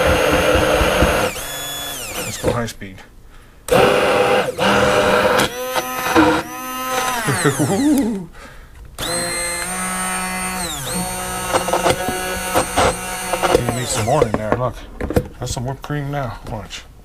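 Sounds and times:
hand blender motor whining: 0.0s - 2.5s, 3.7s - 8.1s, 9.0s - 14.4s.

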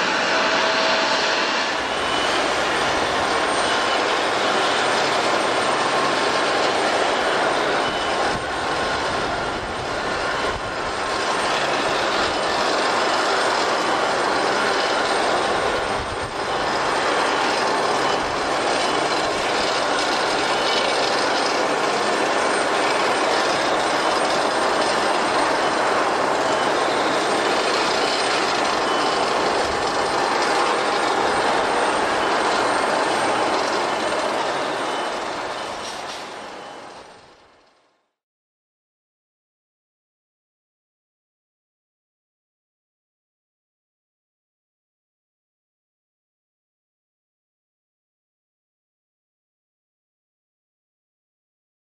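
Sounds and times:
jet engines roaring: 0.0s - 37.6s.

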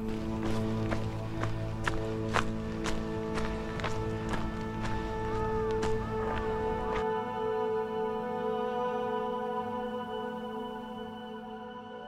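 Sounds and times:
sustained chord tones: 0.0s - 12.0s.

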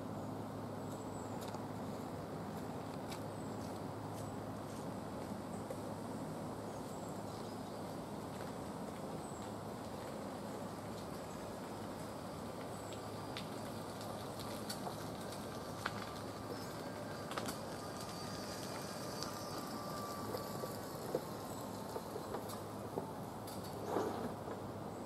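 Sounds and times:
low outdoor background noise: 0.0s - 25.0s
faint high chirps: 16.2s - 22.6s.

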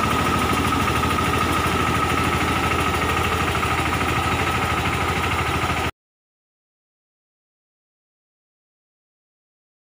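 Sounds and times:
sprayer high whine: 0.0s - 5.9s
tractor engine running: 0.0s - 5.9s.

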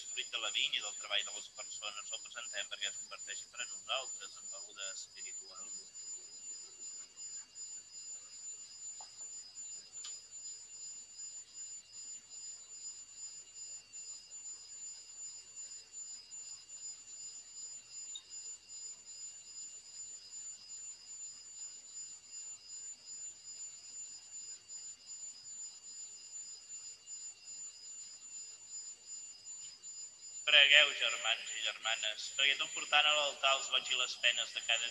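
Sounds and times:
low hiss: 0.0s - 5.7s, 29.6s - 34.9s.

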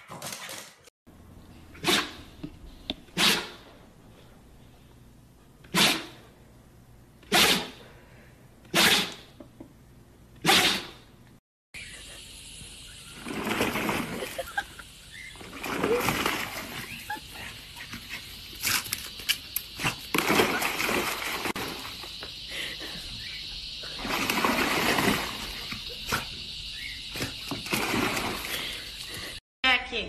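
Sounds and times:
dog splashing in paddling pool: 12.9s - 26.4s, 27.0s - 29.4s.

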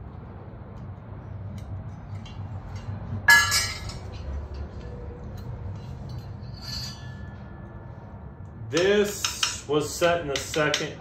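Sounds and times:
metal piece clanking down: 2.2s - 4.7s.

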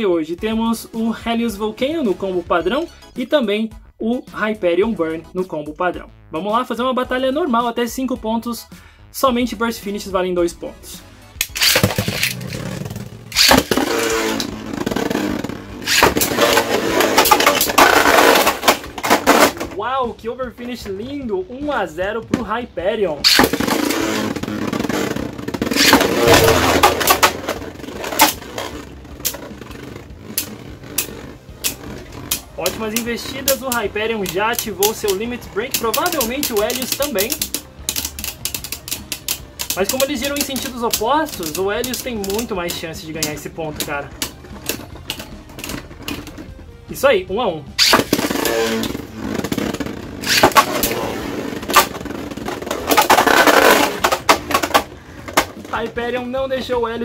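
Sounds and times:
spinning tops clacking together: 11.4s - 19.6s, 23.3s - 29.5s, 30.4s - 46.3s, 47.8s - 48.9s, 49.6s - 55.6s
spinning tops scraping rattle: 11.4s - 19.6s, 23.2s - 46.4s, 47.8s - 55.1s.

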